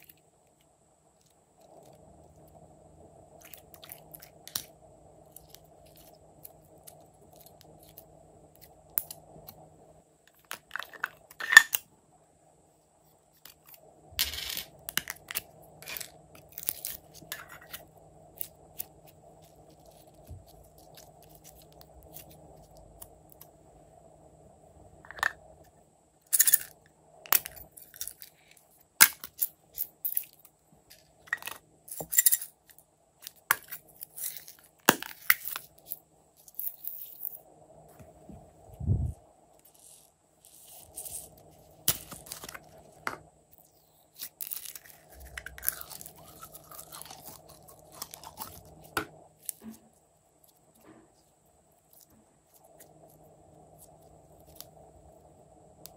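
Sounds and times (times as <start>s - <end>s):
slime squelching: 44.2s - 49.8s.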